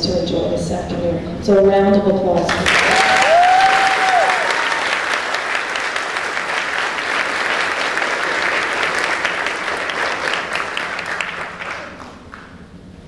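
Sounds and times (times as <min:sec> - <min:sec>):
audience applauding: 0:02.5 - 0:12.6.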